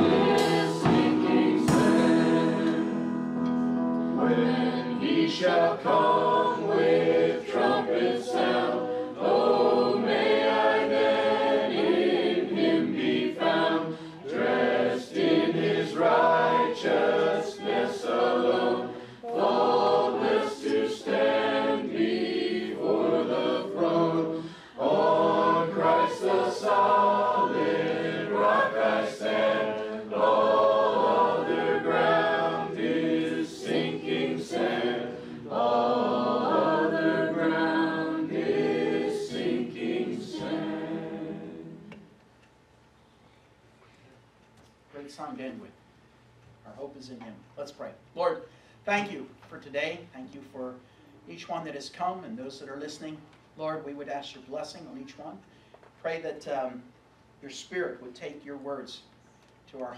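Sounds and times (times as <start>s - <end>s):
group singing into microphones: 0.0s - 3.4s, 4.1s - 42.2s.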